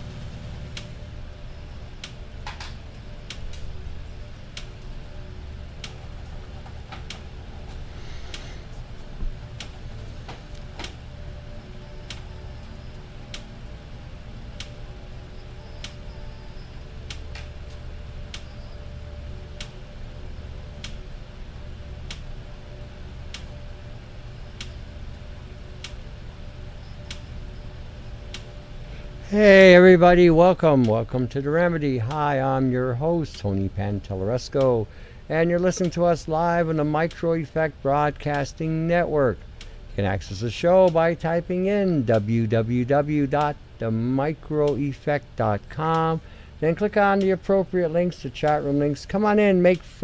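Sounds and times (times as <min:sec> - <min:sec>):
low hum: 0:00.0 - 0:50.0
sharp ticking clicks: 0:40.4 - 0:49.8.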